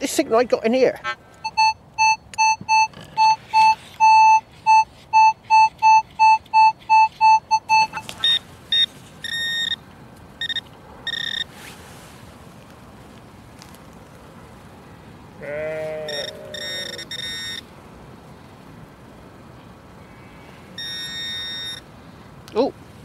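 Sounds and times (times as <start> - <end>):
metal detector beeping: 1.4 - 9.8, 10.4 - 11.5, 16.1 - 17.6, 20.8 - 21.8.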